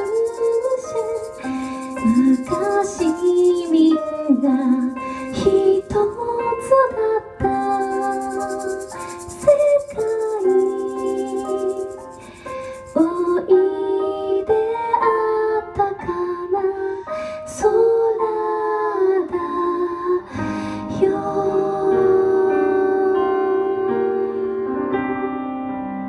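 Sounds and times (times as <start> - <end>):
electronic keyboard: 0.0 - 6.8, 7.5 - 13.5.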